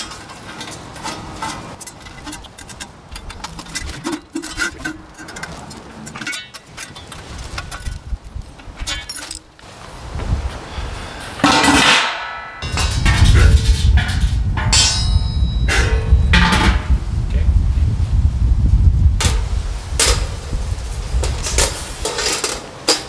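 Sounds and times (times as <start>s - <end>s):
metallic scrape: 0.0s - 9.5s
steel barrel shifted rumble: 0.0s - 23.0s.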